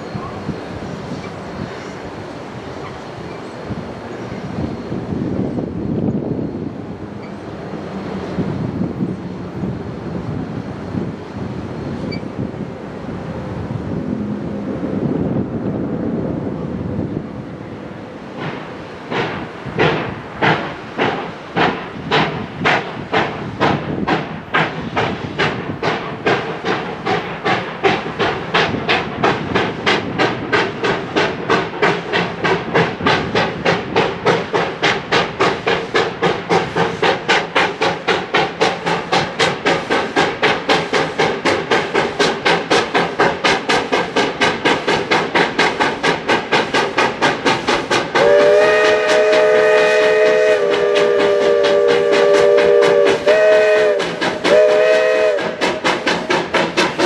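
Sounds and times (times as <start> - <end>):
steam locomotive exhaust chuffs: 18.2 - 57.0
steam whistle blast: 48.2 - 55.6.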